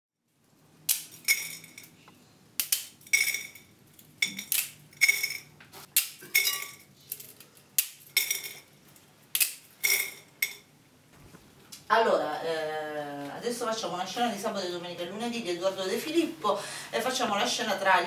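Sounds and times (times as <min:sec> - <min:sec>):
cutlery and dishes clinking: 0:00.9 - 0:02.0, 0:02.6 - 0:08.7, 0:09.4 - 0:10.7.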